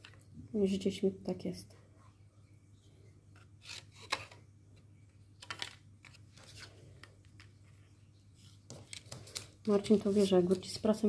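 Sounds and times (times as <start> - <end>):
low steady hum: 0.0 - 11.0
paper rustling and being cut: 3.6 - 4.4.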